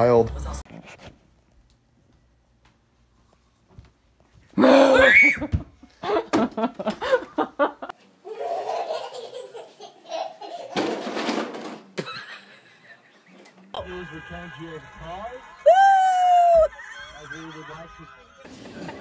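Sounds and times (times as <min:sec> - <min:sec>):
girl laughing loudly: 0:04.6 - 0:10.8, 0:15.4 - 0:18.4.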